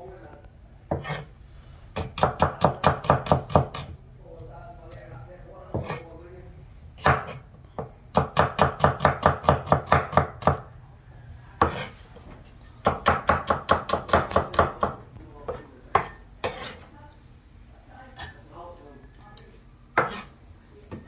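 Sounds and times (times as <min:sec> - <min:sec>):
cleaver chopping on wooden block: 0:02.0 - 0:03.9, 0:07.0 - 0:10.6.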